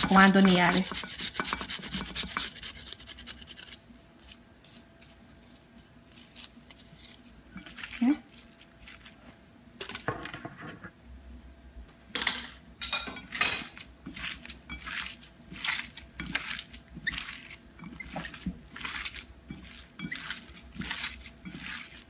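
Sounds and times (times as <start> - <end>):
wet squishing of kneaded meat: 5.0 - 9.5, 13.3 - 22.0.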